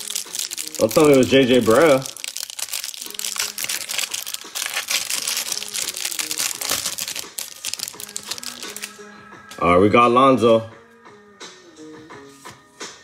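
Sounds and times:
plastic packaging crinkling: 0:00.0 - 0:08.9
quiet background music: 0:00.0 - 0:13.0.

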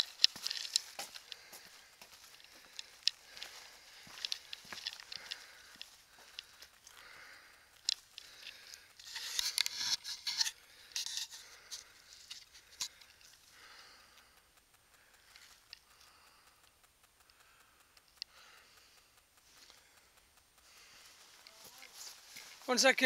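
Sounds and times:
sharp clicks: 0:00.0 - 0:23.0
phone rubbing against clothing and rock: 0:07.8 - 0:13.0.

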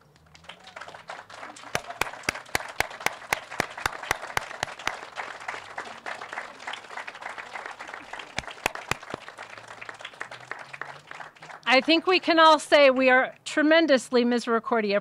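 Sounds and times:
audience applauding: 0:00.0 - 0:12.3
loud close hand claps: 0:00.1 - 0:12.0.

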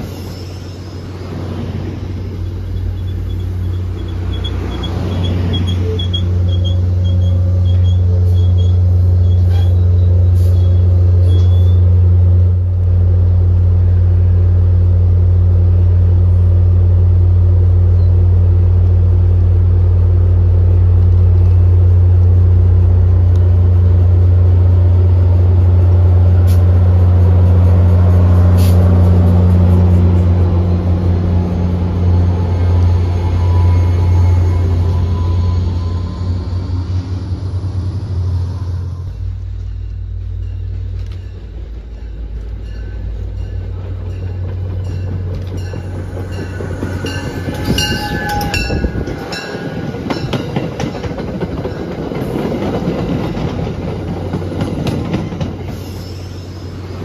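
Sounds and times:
diesel locomotive drone: 0:00.0 - 0:57.0
train wheels clicking on rail joints: 0:01.4 - 0:11.9, 0:39.1 - 0:57.0.

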